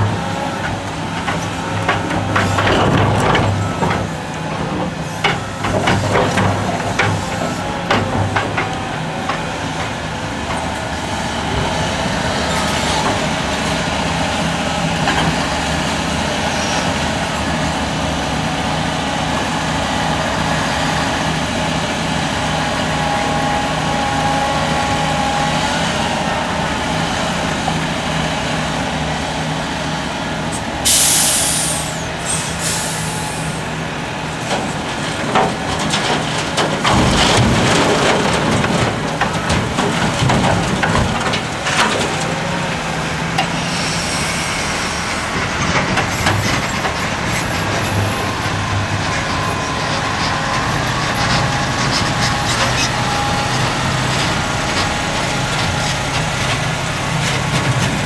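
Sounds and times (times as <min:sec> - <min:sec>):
diesel engines running: 0:00.0 - 0:58.0
air brake hiss: 0:30.8 - 0:33.6, 0:43.6 - 0:45.1.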